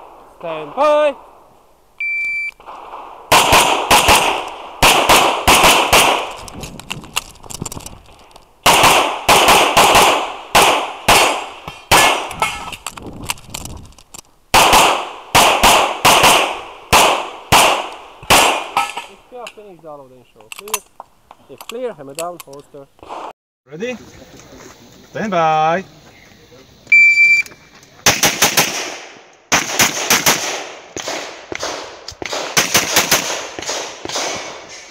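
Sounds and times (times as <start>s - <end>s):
pistol shots: 2.6s - 6.4s, 8.6s - 12.7s, 14.5s - 19.1s, 28.0s - 34.9s.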